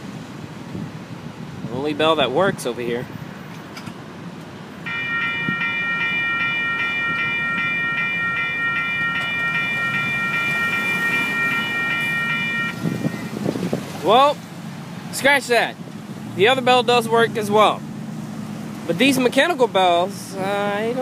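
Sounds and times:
railroad crossing bell ringing: 4.8 - 13.6.

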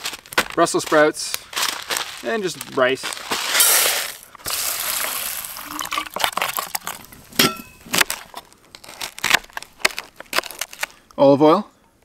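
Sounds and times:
rice poured into metal pot: 3.4 - 6.9.

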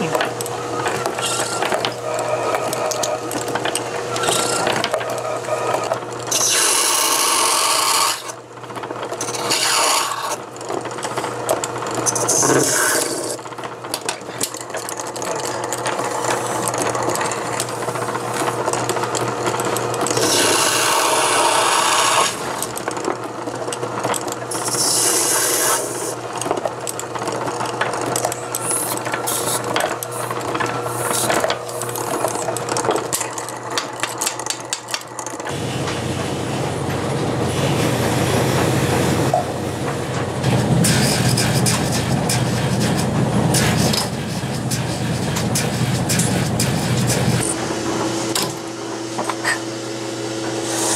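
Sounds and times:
lathe humming: 0.0 - 50.9
tool rasping on spinning part: 9.2 - 10.4, 12.1 - 13.4, 24.5 - 26.2.

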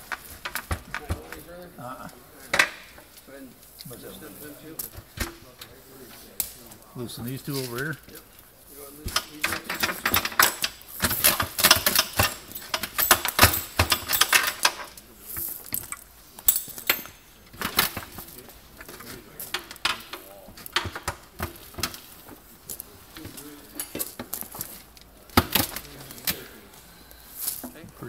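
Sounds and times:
plastic panels and metal latches clattering: 9.1 - 15.1, 15.7 - 22.5.

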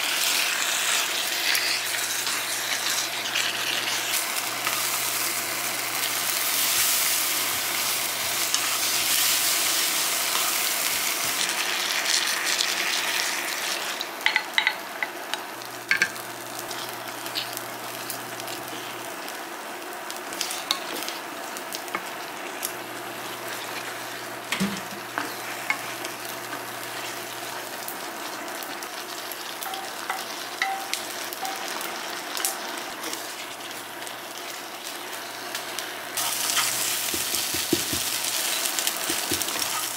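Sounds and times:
food sizzling in frying pan: 0.0 - 39.9
spatula stirring and scraping: 6.0 - 11.5, 36.2 - 39.9.

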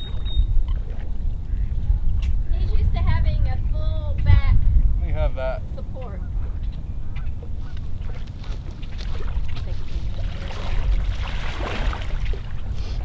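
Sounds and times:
wind on microphone: 0.0 - 13.0
wading through shallow water: 5.7 - 13.0.

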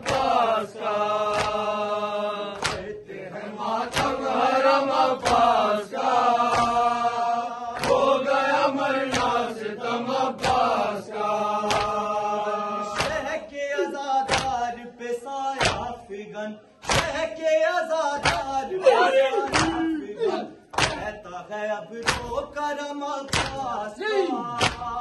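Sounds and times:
hands slapping chests: 0.0 - 13.4, 14.2 - 14.7, 15.6 - 16.0, 16.8 - 17.3, 18.2 - 18.7, 19.3 - 20.0, 20.6 - 21.2, 22.0 - 22.6, 23.2 - 23.8, 24.5 - 25.0
voices chanting a lament: 0.0 - 25.0.

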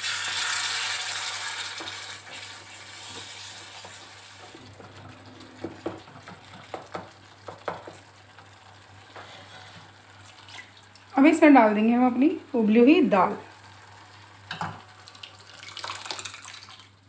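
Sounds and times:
sauce sizzling in a pan: 0.0 - 4.7, 5.6 - 16.4
spatula tapping and scraping pan: 4.8 - 8.5.

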